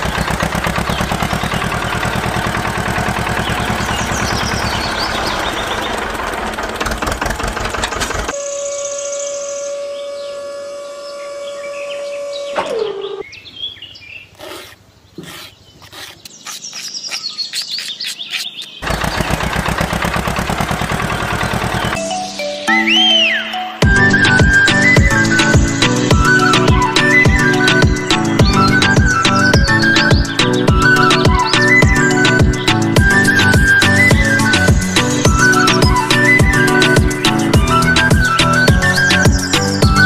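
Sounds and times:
birds chirping: 0.0s - 7.1s, 8.2s - 40.0s
tractor engine chugging: 0.0s - 8.4s, 18.8s - 22.1s, 23.8s - 40.0s
hydraulic whine: 6.5s - 13.2s.

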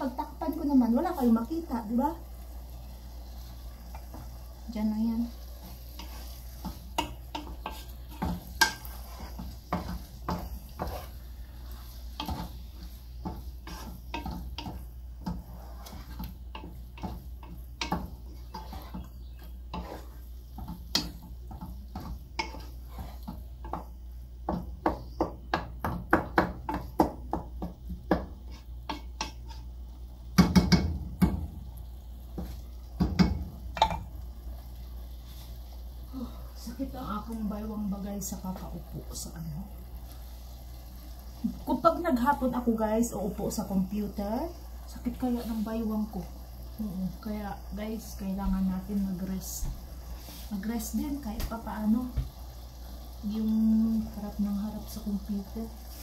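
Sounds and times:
wooden spoon scraping pot: 1.0s - 25.3s, 27.7s - 29.8s.

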